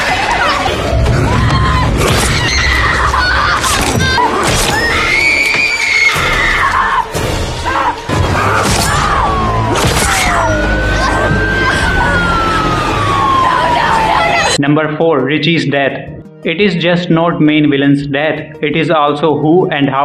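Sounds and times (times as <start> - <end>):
tense orchestral score: 0.0 - 14.7
young woman screaming: 1.3 - 7.2.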